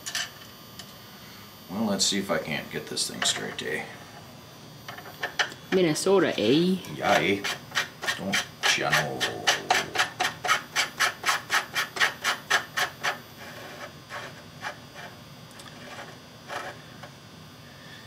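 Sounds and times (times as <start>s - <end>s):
metal threads scraping: 6.8s - 17.1s.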